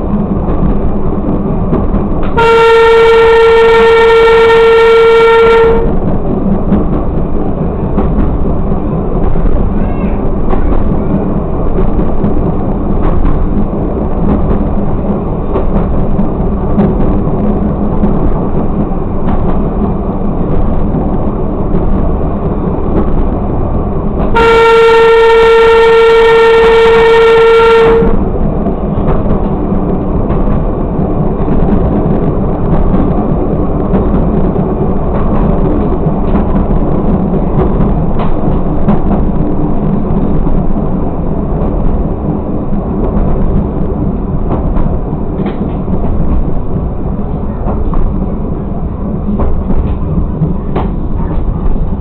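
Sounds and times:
railcar running on track: 0.0s - 52.0s
long single-note horn blast: 2.4s - 5.9s, 24.4s - 28.2s.

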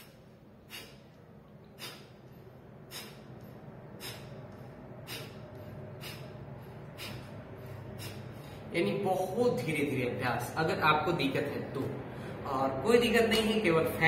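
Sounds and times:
forceful exhales through nose: 0.0s - 2.2s, 2.8s - 3.3s, 4.0s - 4.4s, 5.0s - 8.6s.

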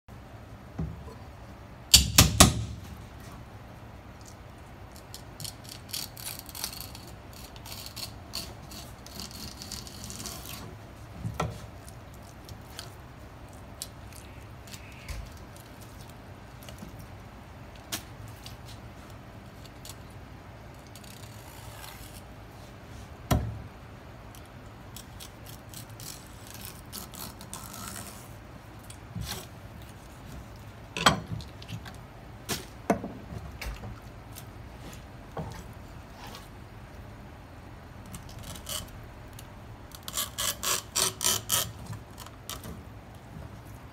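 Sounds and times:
knife scraping and slicing: 5.0s - 10.8s, 20.8s - 22.3s, 24.9s - 28.4s, 39.9s - 42.7s.

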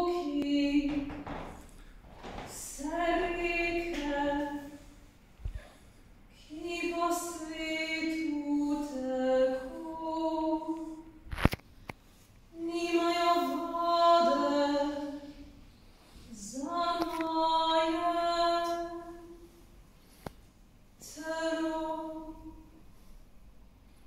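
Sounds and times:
woman singing unaccompanied: 0.0s - 1.4s, 2.4s - 4.9s, 6.4s - 11.1s, 12.5s - 15.5s, 16.3s - 19.4s, 21.0s - 22.8s.

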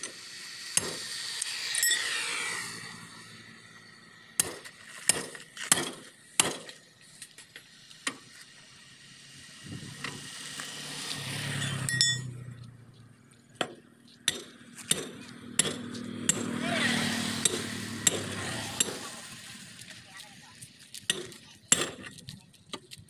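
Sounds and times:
hammer striking steel wheel rim: 0.8s - 1.1s, 13.6s - 16.5s, 17.4s - 19.0s.

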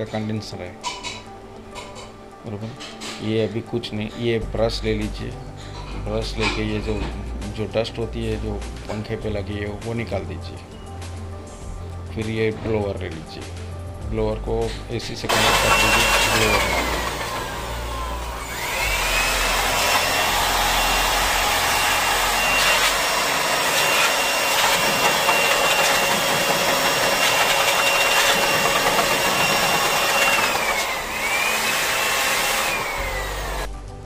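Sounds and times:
electric blower whining: 15.3s - 33.8s.

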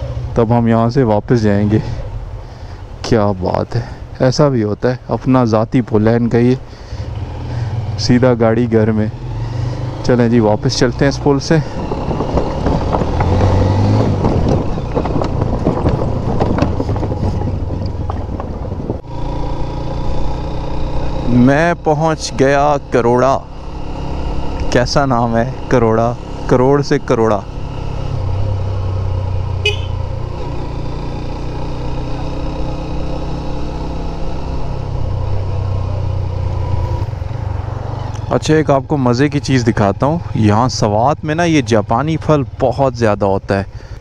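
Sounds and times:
motorcycle engine running: 6.0s - 44.0s
wheels clattering over bridge deck: 11.1s - 19.0s
wind on microphone: 11.8s - 19.0s.

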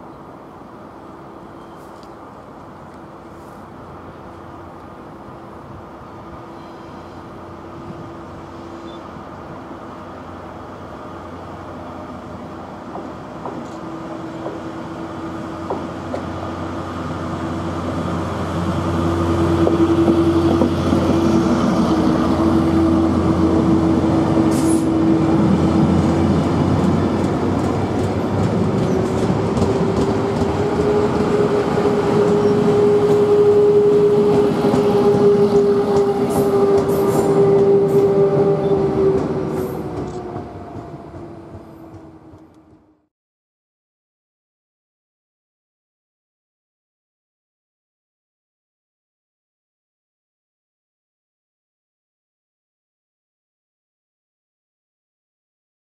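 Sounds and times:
wheels rumbling on rails: 0.0s - 43.1s
locomotive droning: 0.2s - 43.0s.

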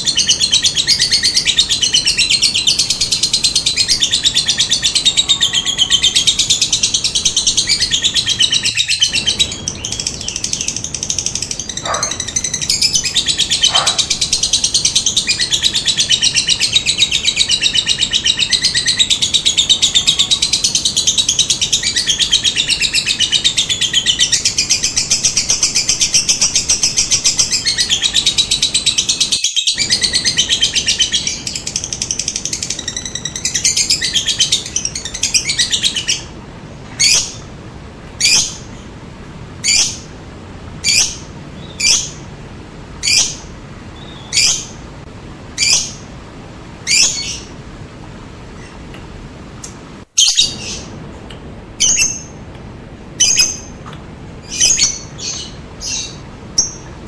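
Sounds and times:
lovebird chattering trills: 0.0s - 36.3s, 51.8s - 52.4s.

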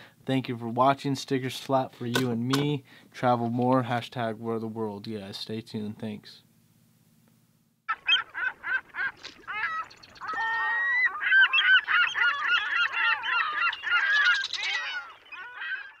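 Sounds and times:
flock of birds honking: 7.9s - 16.0s.

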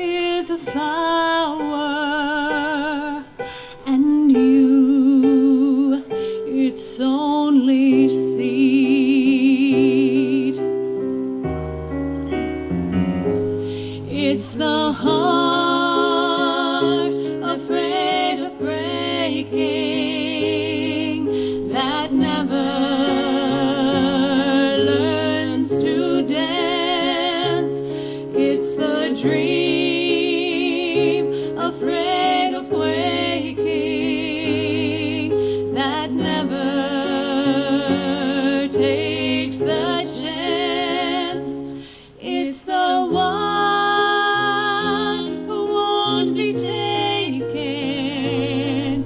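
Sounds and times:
mixed choir singing: 14.1s - 49.0s.

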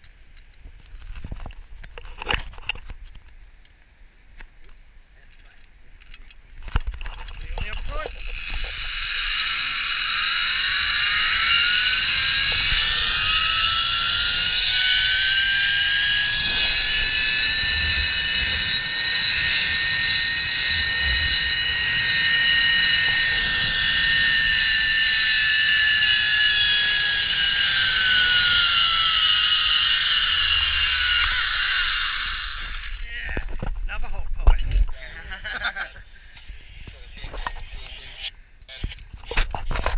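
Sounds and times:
zipline pulley whining on cable: 7.6s - 33.1s.

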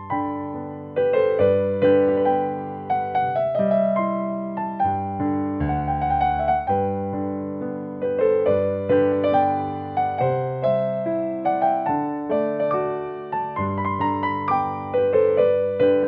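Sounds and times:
gentle piano tune: 0.0s - 16.0s.

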